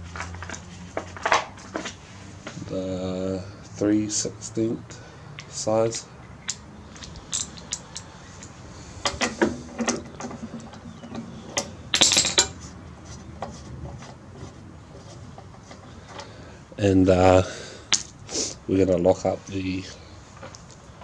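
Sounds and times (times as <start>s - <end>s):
ratchet wrench clicking: 6.4s - 8.6s
metal clinks: 6.4s - 9.2s.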